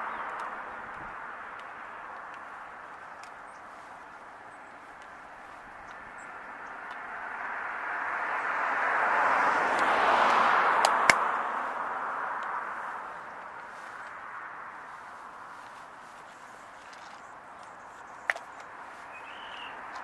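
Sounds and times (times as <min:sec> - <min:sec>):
vehicle passing by: 0:00.0 - 0:20.0
sharp clicks: 0:09.8 - 0:11.3.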